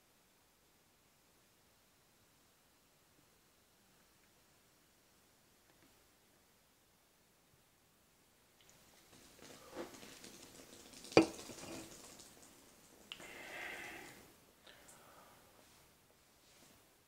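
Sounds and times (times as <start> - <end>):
beer pouring and fizzing: 8.6 - 14.3
glass clinking: 11.1 - 11.9
person drinking: 13.1 - 15.1.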